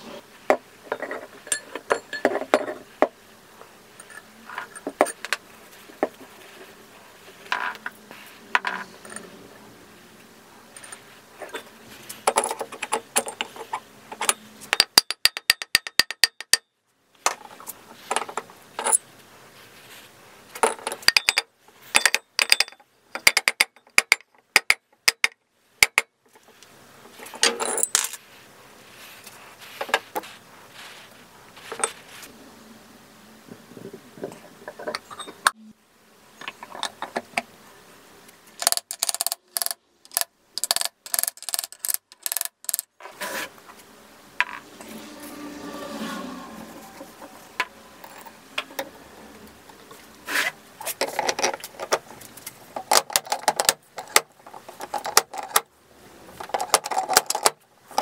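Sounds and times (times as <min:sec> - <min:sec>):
metal parts clinking and knocking: 0:00.9 - 0:02.8, 0:20.6 - 0:25.3, 0:27.2 - 0:28.2, 0:38.6 - 0:42.9.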